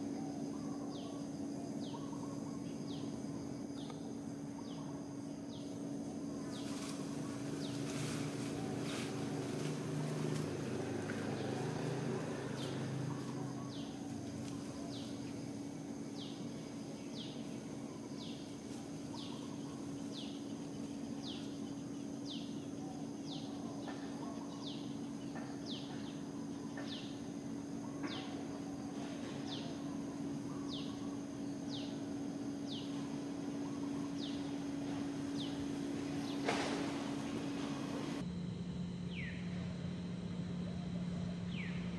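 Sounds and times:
faint high insect whine: 0.0 - 41.9
steady low hum: 0.0 - 41.9.

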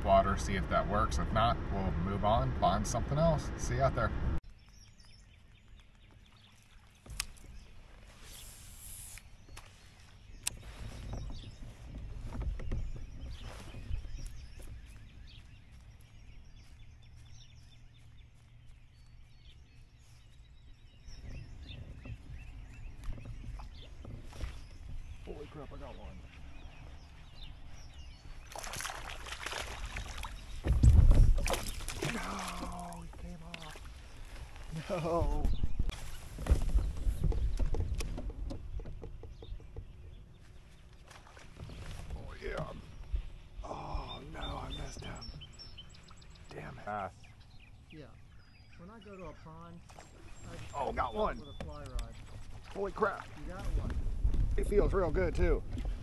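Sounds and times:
brief hiss: 8.2 - 9.3
fish splashing: 28.4 - 34.8
heavy deep splash: 28.5 - 33.0.

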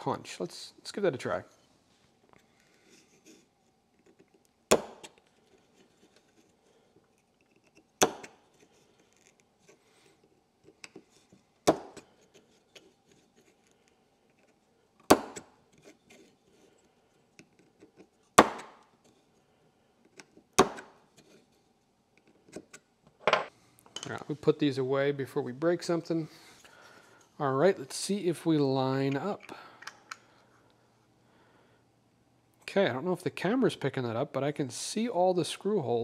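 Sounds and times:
hammer striking pin punch: 15.1 - 15.4.

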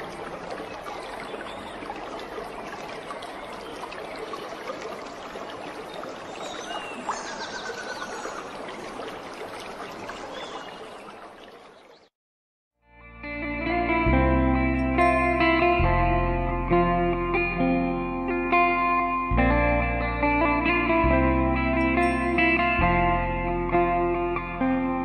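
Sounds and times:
water trickling and splashing: 0.0 - 12.1.

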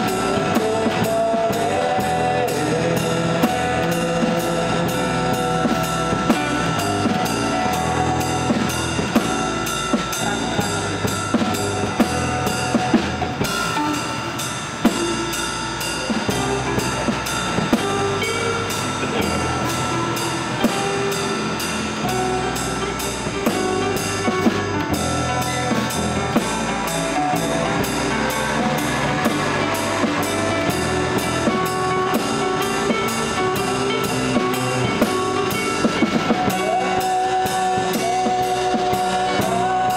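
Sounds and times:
acoustic guitars playing: 0.0 - 39.9
drum kit with cymbal hits: 0.0 - 39.9.

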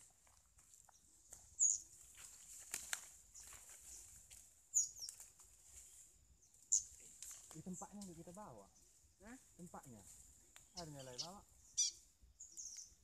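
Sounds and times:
rustles and twig clicks: 0.0 - 13.0
high-pitched bird calls: 1.6 - 1.9, 4.7 - 5.2, 10.7 - 13.0.

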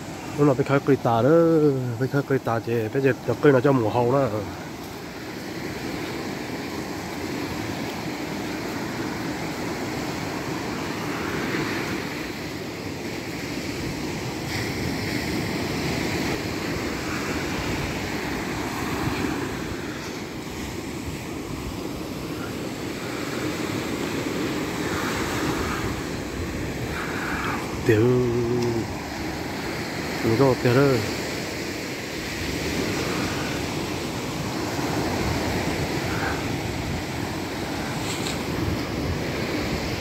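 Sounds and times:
small waves washing on beach: 0.0 - 40.0
wind rumbling on microphone: 13.5 - 30.6, 32.3 - 40.0.

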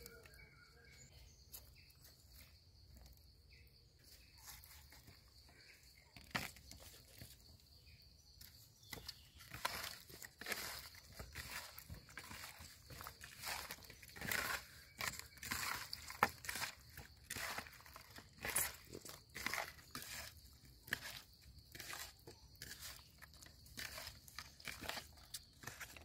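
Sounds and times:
hands rustling and scraping fish: 9.5 - 26.0.

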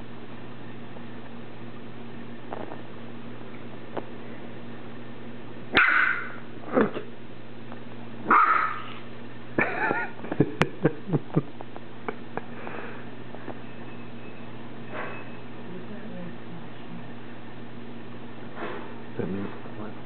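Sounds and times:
puppy barking: 5.7 - 6.4, 8.3 - 9.0.

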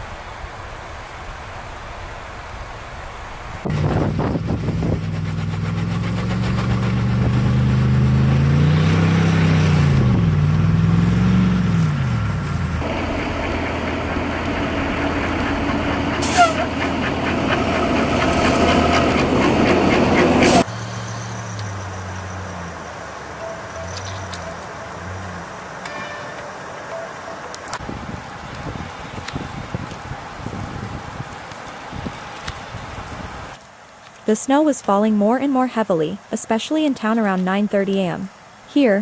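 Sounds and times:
truck engine revving: 3.6 - 26.0
quiet engine running steadily: 3.7 - 8.5, 9.4 - 26.2
rough loud engine: 3.7 - 26.5.

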